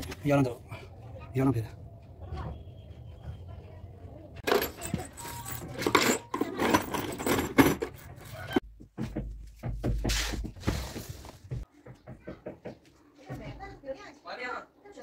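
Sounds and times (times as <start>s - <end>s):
metal screws clinking on concrete: 4.4s - 8.0s.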